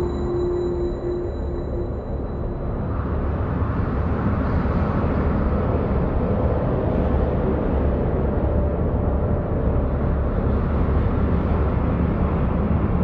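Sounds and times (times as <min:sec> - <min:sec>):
faint held tone: 0:00.0 - 0:02.8
low rumbling industrial drone: 0:00.0 - 0:13.0.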